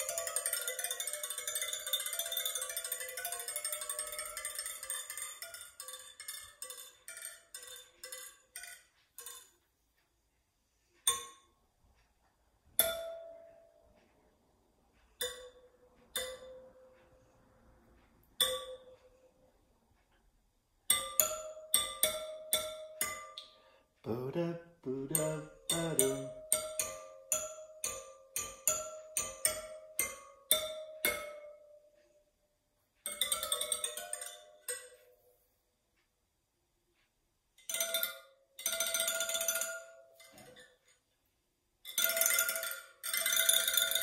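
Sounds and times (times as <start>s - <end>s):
metal tapping bicycle spokes: 0.0s - 10.1s, 10.9s - 14.3s, 15.0s - 17.4s, 18.0s - 19.4s, 20.8s - 23.7s, 25.0s - 32.2s, 33.0s - 35.2s, 37.6s - 41.1s, 41.8s - 44.0s.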